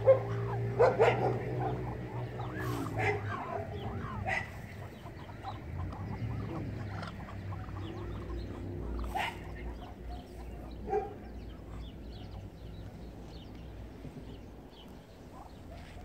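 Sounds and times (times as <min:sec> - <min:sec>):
ducks calling softly: 0:00.0 - 0:16.0.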